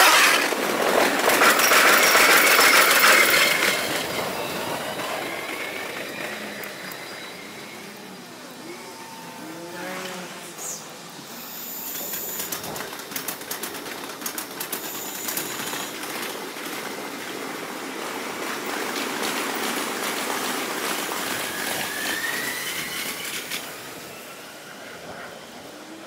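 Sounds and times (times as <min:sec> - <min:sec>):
rapid clicks of train wheels: 0:00.0 - 0:08.0, 0:11.2 - 0:26.0
train rushing: 0:00.0 - 0:26.0
rising whine: 0:02.6 - 0:12.4.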